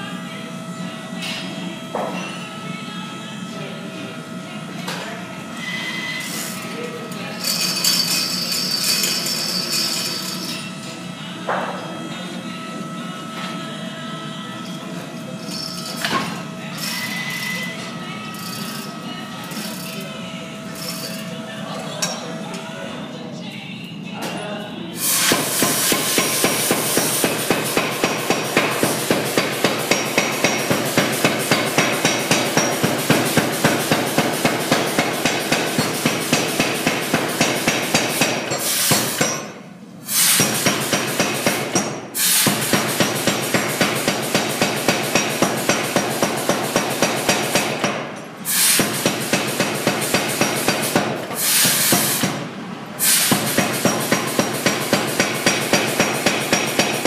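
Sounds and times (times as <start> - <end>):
power hammer hammering hot steel: 25.0 - 52.4, 53.0 - 57.0.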